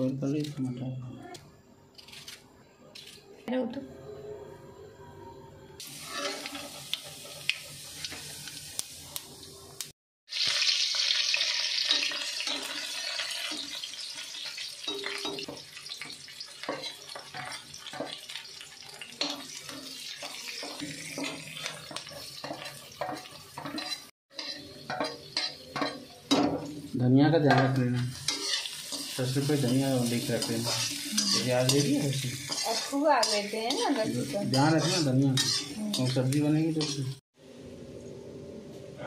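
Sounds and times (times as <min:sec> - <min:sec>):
hot oil sizzling: 0:05.8 - 0:37.6
metal spatula scraping pan: 0:05.9 - 0:07.5, 0:16.6 - 0:18.3, 0:19.2 - 0:26.6, 0:27.5 - 0:37.2.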